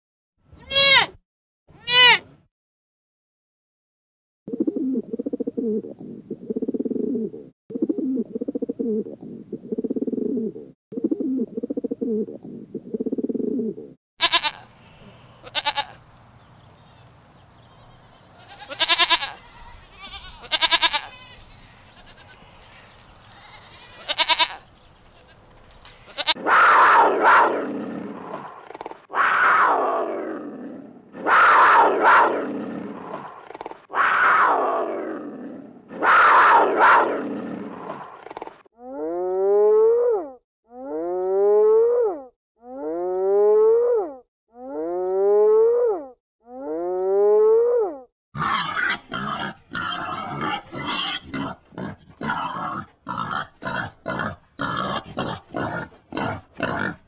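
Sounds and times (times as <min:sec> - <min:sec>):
farm animal calls: 0:13.6 - 0:16.0, 0:16.8 - 0:26.6, 0:48.4 - 0:57.0.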